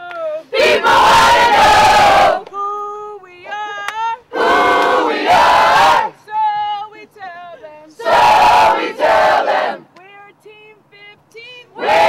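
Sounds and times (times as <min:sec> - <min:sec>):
group chanting a cheer: 0:00.6 - 0:02.5, 0:04.3 - 0:06.2, 0:08.0 - 0:09.9, 0:11.8 - 0:12.0.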